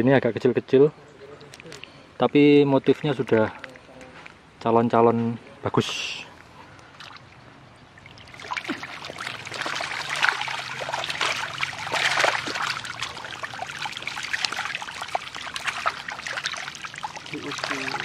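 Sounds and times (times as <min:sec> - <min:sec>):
fish splashing in shallow water: 0:06.8 - 0:18.0.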